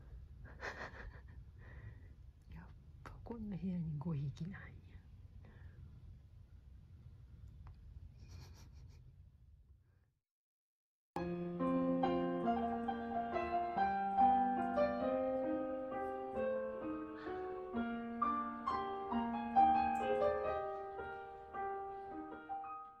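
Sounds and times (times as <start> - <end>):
gentle piano music: 11.2 - 23.0.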